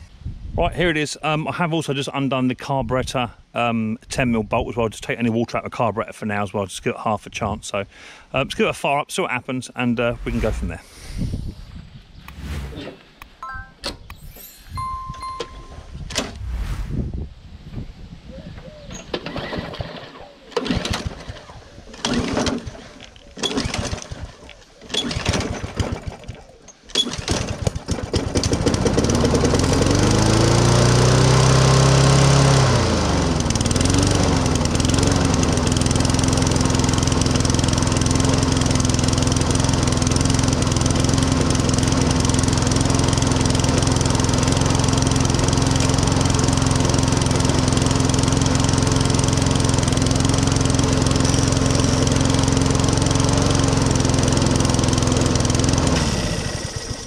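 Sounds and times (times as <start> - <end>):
starter cord pulls: 19.0 - 28.8
lawnmower engine running: 19.2 - 57.0.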